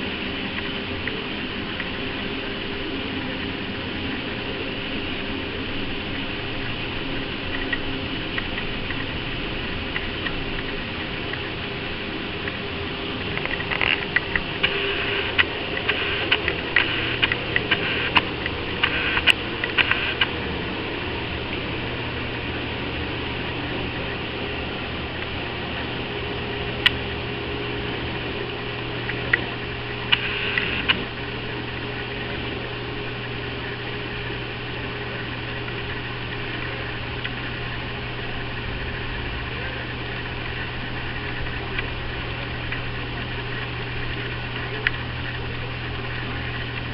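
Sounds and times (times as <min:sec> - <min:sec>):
low mechanical hum: 0:00.0 - 0:46.9.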